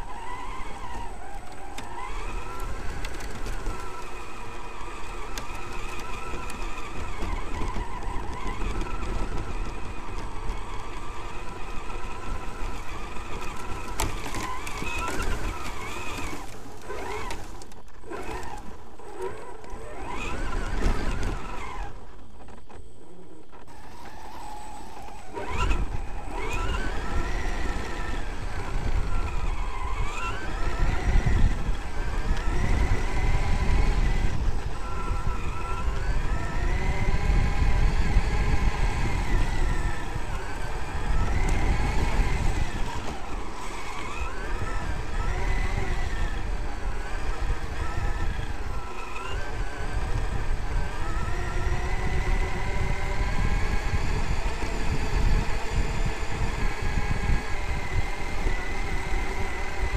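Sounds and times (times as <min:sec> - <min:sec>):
electric motor whining: 0:00.0 - 0:59.9
tyres rumbling on grass: 0:00.1 - 0:18.9.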